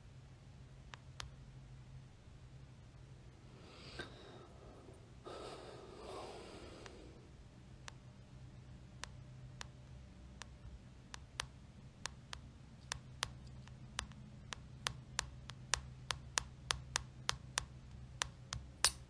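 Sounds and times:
faint low hum: 0.0 - 19.0
taps on touchscreen: 9.0 - 19.0.

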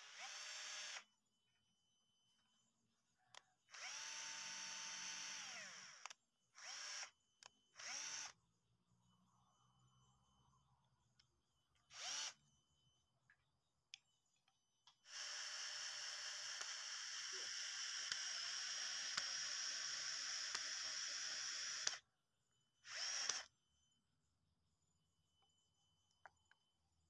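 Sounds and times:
cordless drill boring bamboo: 0.0 - 1.0, 3.7 - 7.1, 7.8 - 8.4, 11.9 - 12.4, 15.1 - 22.0, 22.9 - 23.5.

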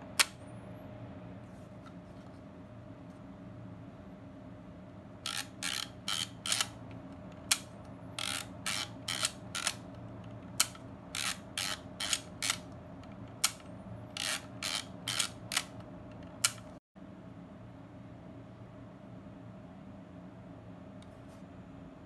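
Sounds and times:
film advance thumbwheel ratcheting: 5.2 - 16.7.

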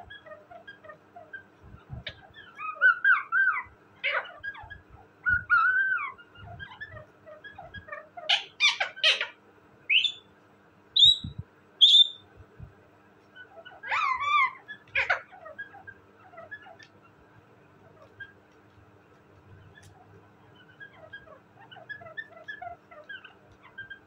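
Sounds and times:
parakeet whistly chatter calls: 0.0 - 10.3, 11.0 - 12.2, 13.4 - 16.8
parakeet harsh squawks: 2.1 - 4.7, 8.2 - 10.2, 13.4 - 16.8.

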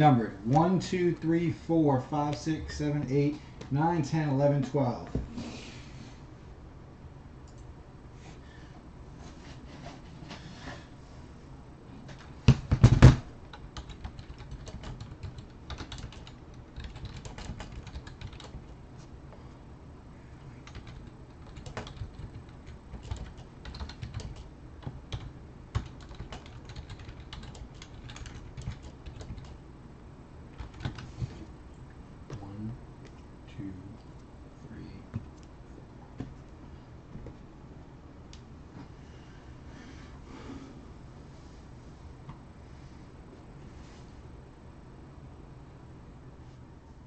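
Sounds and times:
typing on computer keyboard: 12.6 - 18.7, 20.6 - 29.6, 30.6 - 31.1.

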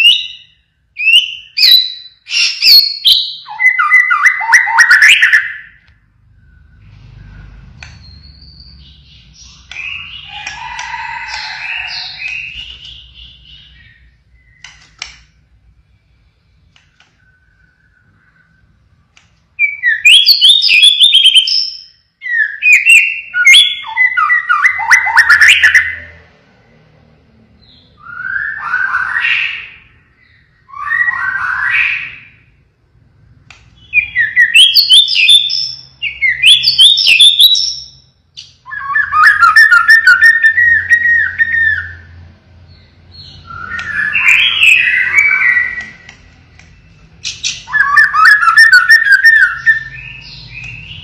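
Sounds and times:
songbird trills and whistles: 0.0 - 5.8, 6.4 - 15.1, 19.6 - 26.1, 33.8 - 42.1, 42.8 - 51.0.

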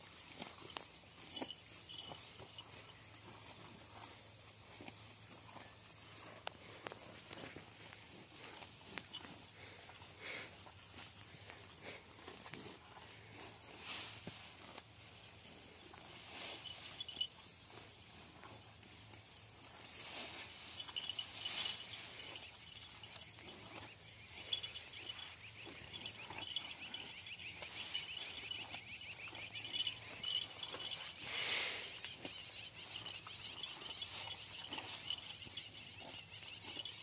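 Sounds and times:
cows munching grass: 0.0 - 37.0
high chirping: 20.3 - 37.0.

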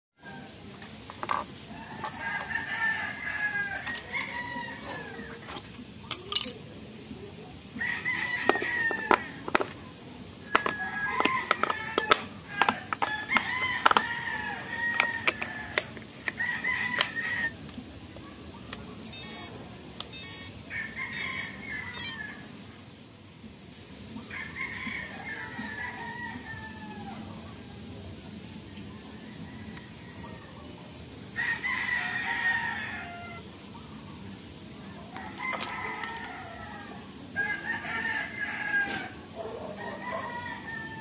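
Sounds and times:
rooster crowing: 1.2 - 5.4, 7.8 - 9.8, 10.5 - 17.5, 20.2 - 22.5, 24.2 - 27.3, 31.4 - 33.4, 35.2 - 41.0.

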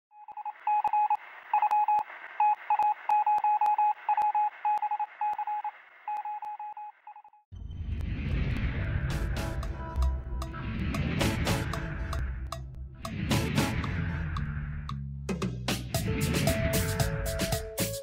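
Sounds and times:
morse code beeps: 0.2 - 7.4
deep low rumble: 7.6 - 15.2.

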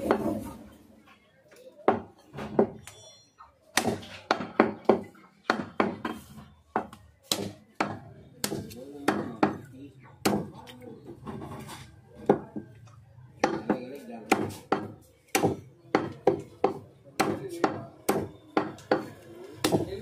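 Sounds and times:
cleaver chopping chicken: 13.4 - 20.0.

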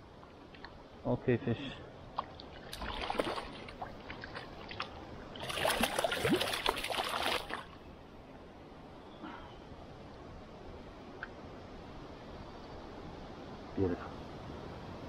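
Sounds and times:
fish splashing in water: 2.3 - 7.7.

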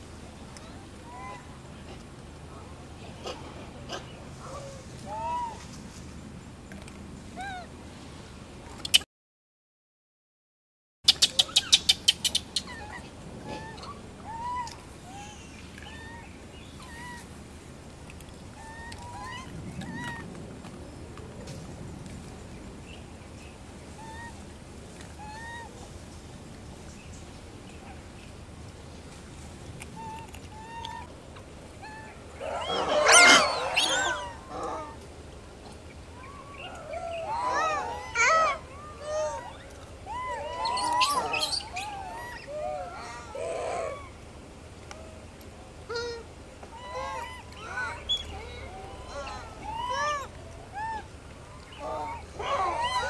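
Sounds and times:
low background rumble: 11.7 - 53.0
animal calls: 31.8 - 35.0, 36.2 - 44.2, 45.9 - 53.0.

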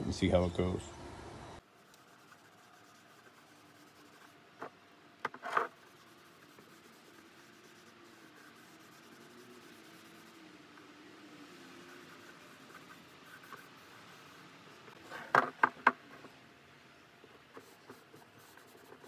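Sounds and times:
cloth rag rubbing wood: 1.8 - 4.4, 5.3 - 15.8, 17.6 - 19.0.

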